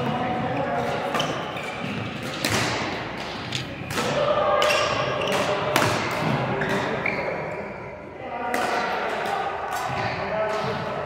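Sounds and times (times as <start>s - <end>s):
badminton racket hitting shuttlecock: 2.2s - 6.2s.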